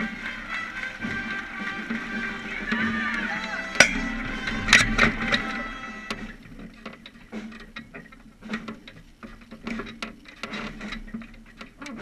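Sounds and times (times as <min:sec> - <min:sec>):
faint voices murmuring: 0:00.0 - 0:06.4
wooden clicks and knocks: 0:04.7 - 0:12.0.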